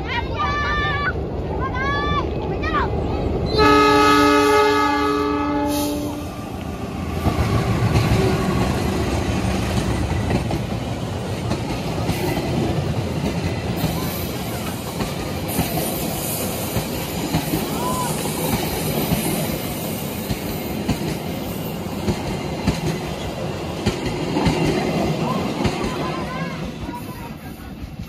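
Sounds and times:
train wheels clacking over rail joints: 0:07.2 - 0:27.0.

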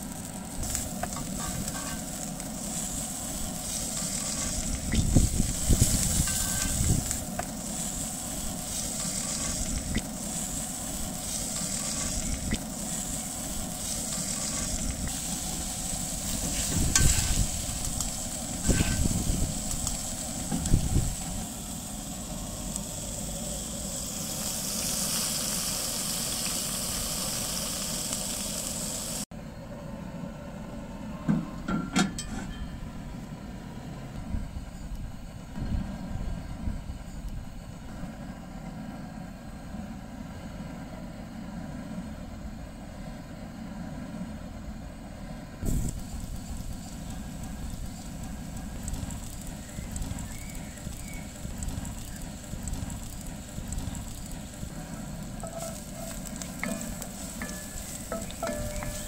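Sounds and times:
steak sizzling in butter: 0:00.0 - 0:29.3, 0:45.6 - 0:59.0.

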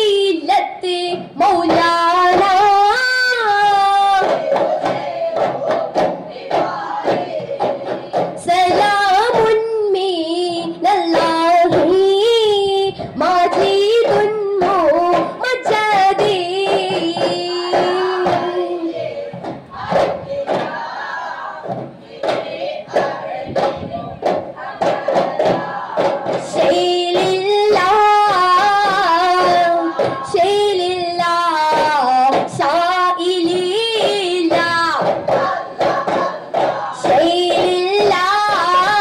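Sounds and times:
frame drums beating: 0:00.0 - 0:39.0
group chanting in unison: 0:04.1 - 0:08.4, 0:17.7 - 0:27.2, 0:29.4 - 0:30.4, 0:34.6 - 0:37.7.

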